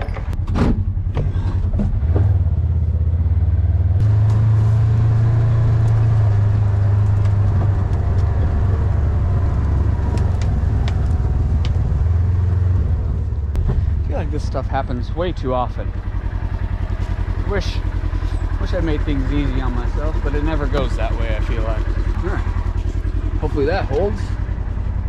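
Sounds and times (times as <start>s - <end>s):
vehicle engine drone: 0.0s - 25.0s.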